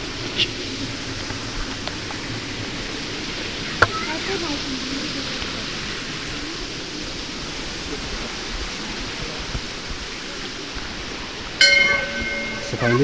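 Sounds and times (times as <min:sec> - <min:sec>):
stream water flowing: 0:00.0 - 0:13.0
metal bell ringing: 0:11.6 - 0:13.0.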